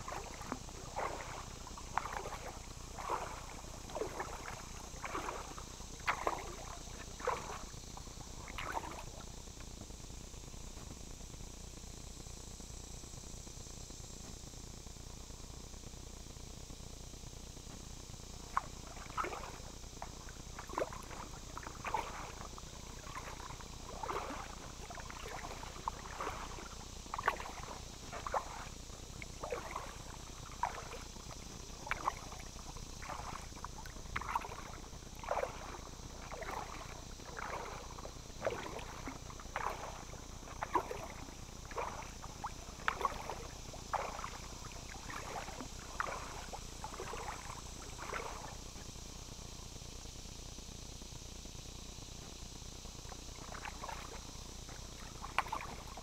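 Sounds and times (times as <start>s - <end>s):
paddle splashing in water: 0.0s - 7.7s, 8.4s - 9.2s, 18.5s - 48.6s, 53.4s - 54.2s, 55.0s - 56.0s
faint steady hiss: 0.0s - 56.0s.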